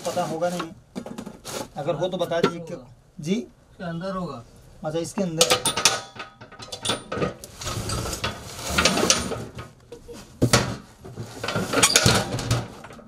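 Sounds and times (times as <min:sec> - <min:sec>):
steel cooking pot clattering: 0:05.4 - 0:07.4.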